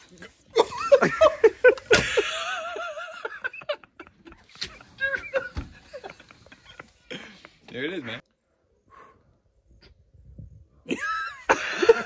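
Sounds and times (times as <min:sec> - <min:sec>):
people laughing: 0:00.5 - 0:07.6, 0:10.9 - 0:12.0
dull thump: 0:05.4 - 0:05.9.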